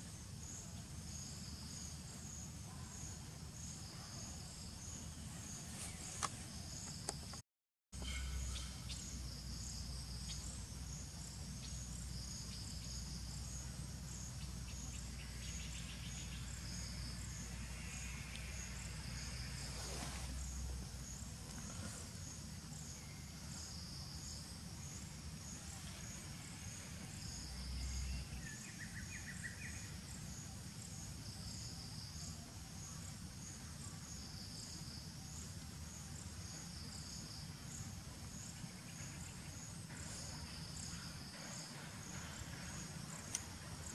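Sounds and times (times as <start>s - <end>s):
insects chirping: 0.0s - 7.4s, 8.0s - 43.9s.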